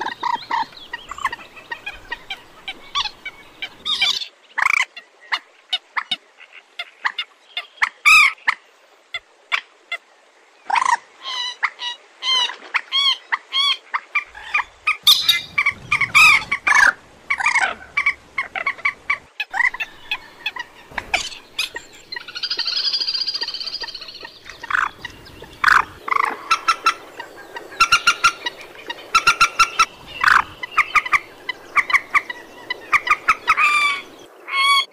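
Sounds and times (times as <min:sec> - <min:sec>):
moorhen calling: 0:00.0 - 0:04.3, 0:13.0 - 0:34.9.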